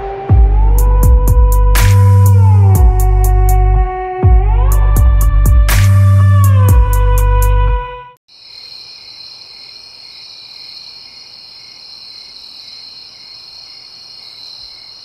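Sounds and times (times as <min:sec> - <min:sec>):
crickets trilling: 0:08.3 - 0:15.0.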